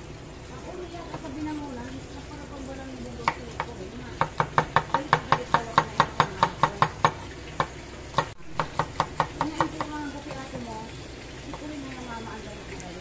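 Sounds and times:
knife chopping on wooden board: 3.2 - 9.9.

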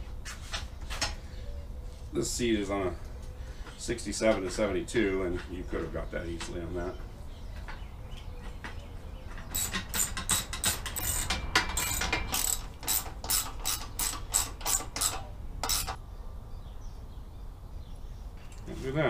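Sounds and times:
socket ratchet clicking: 9.5 - 16.0.

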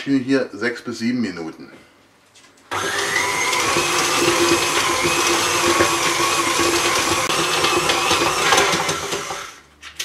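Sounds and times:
stand mixer kneading dough: 2.7 - 9.6.

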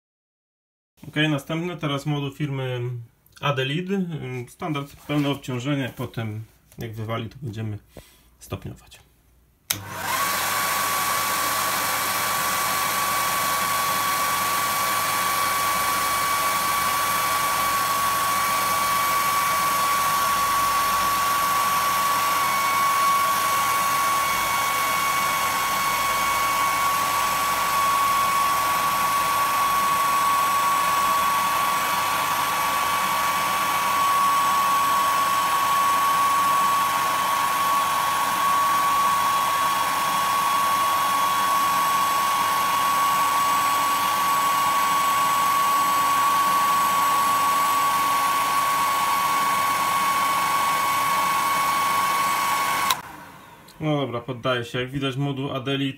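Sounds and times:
hair dryer blowing with whine: 9.7 - 53.8.

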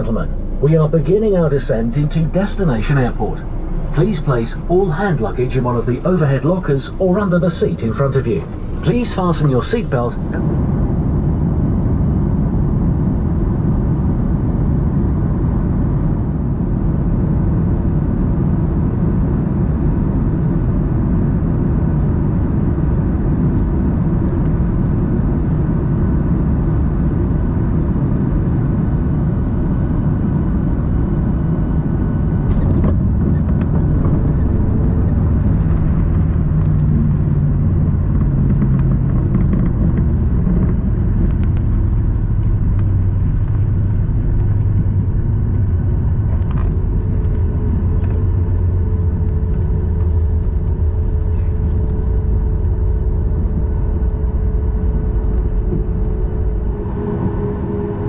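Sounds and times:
airplane cabin roar: 0.0 - 58.0
deep rumble of jet on runway: 0.0 - 58.0.

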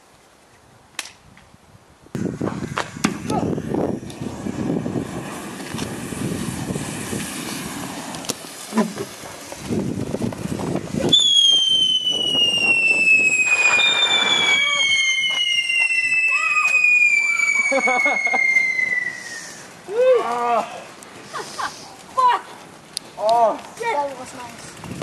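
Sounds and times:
go-kart rumbling on asphalt: 2.3 - 11.3, 20.9 - 25.0
shrill firework whistle: 11.0 - 19.7.

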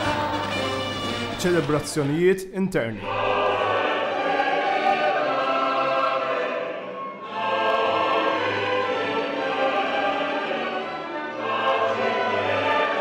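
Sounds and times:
choir singing held notes: 0.0 - 2.1, 2.9 - 13.0.

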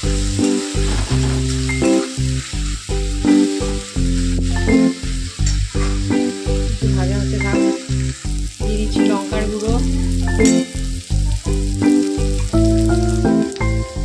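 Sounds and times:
background music: 0.0 - 14.0
onions sizzling in oil: 0.0 - 14.0
metal spatula stirring: 0.5 - 1.8.

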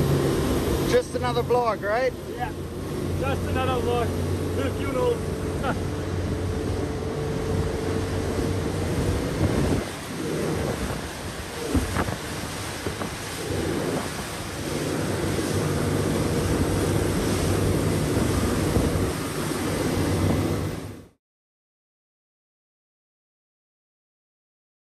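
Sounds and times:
motorboat engine drone: 0.0 - 21.2
rushing water and spray: 0.0 - 21.2
wind buffeting microphone: 2.5 - 21.0.

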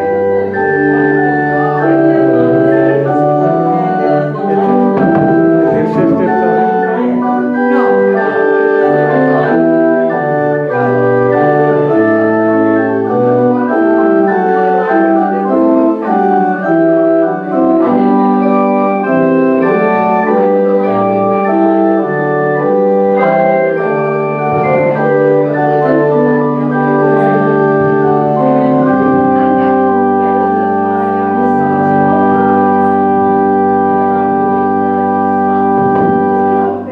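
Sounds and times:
organ playing sustained chords: 0.0 - 36.9.

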